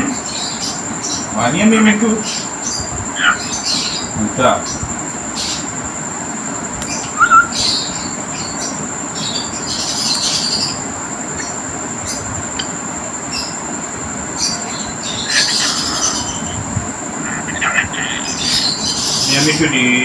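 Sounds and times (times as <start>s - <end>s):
constant high whine: 0.0s - 20.0s
steady background hiss: 0.0s - 20.0s
cockatiel chirps and squawks: 15.1s - 16.6s.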